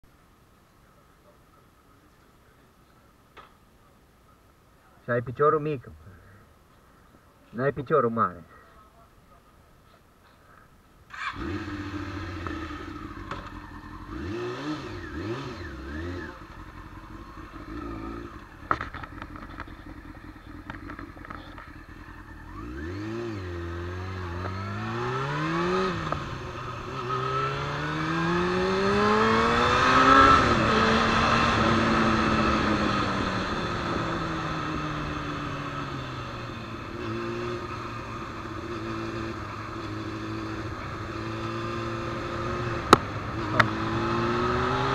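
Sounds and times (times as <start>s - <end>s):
motorcycle engine revving: 11.1s - 44.9s.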